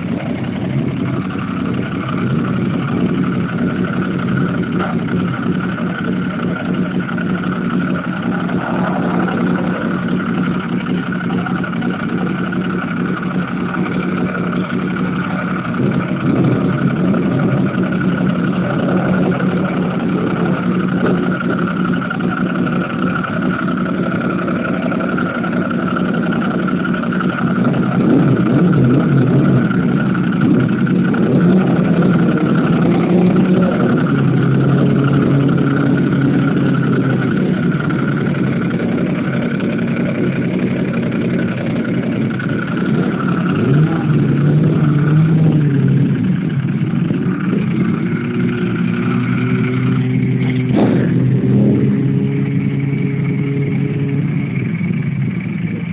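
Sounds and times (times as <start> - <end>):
motorcycle engines idling: 0.0 - 55.9
motorcycle pulling away: 0.0 - 55.9
motorcycle throttle blips: 0.0 - 55.9.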